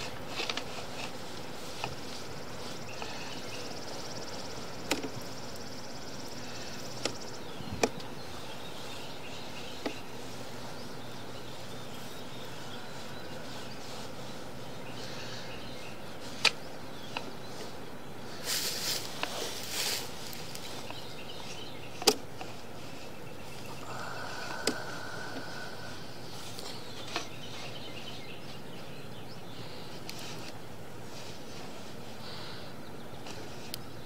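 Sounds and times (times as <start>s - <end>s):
rustle: 0.0s - 34.0s
steady hiss: 0.0s - 34.0s.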